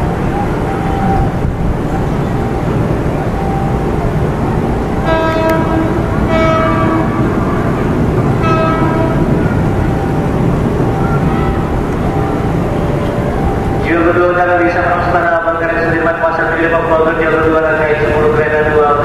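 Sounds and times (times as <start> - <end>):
electric train rumbling: 0.0 - 19.0
train horn blasts: 5.0 - 10.0.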